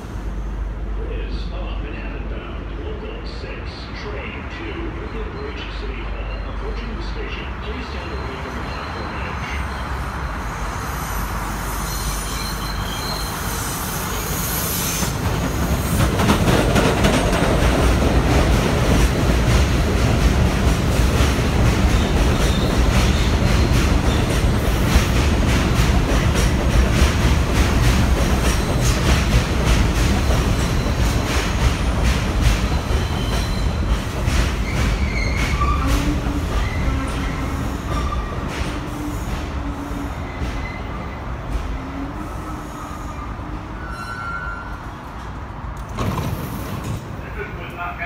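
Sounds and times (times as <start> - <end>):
subway train wheel rumble: 0.0 - 48.0
wheel squeal: 11.0 - 15.2, 34.6 - 41.0, 43.8 - 44.9
clatter over rail joints: 45.8 - 47.2.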